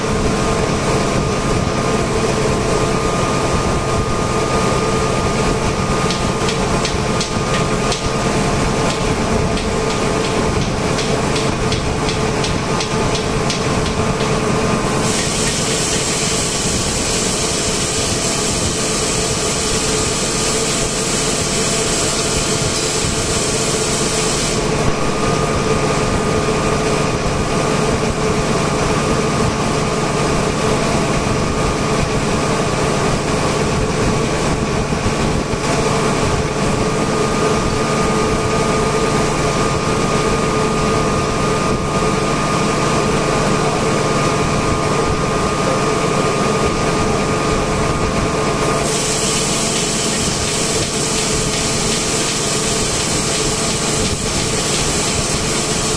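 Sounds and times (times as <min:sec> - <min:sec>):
air compressors humming: 0:00.0 - 0:55.9
high hiss: 0:48.8 - 0:53.8.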